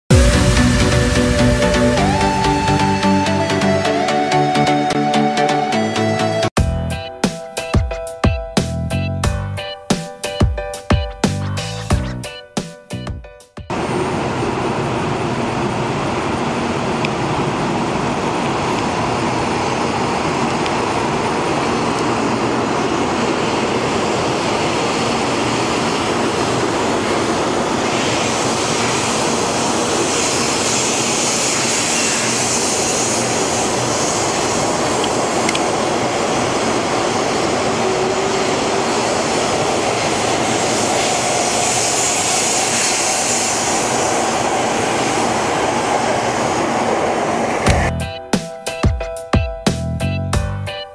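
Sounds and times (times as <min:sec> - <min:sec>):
train rushing past: 0:00.1 - 0:08.3, 0:13.7 - 0:48.8
bright hiss: 0:26.9 - 0:36.0, 0:40.2 - 0:47.0.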